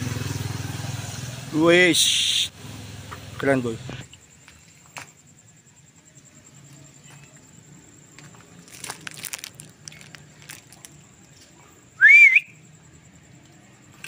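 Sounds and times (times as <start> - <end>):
faint rustling and crinkling: 6.6 - 11.8
short rising whistle: 12.0 - 12.6.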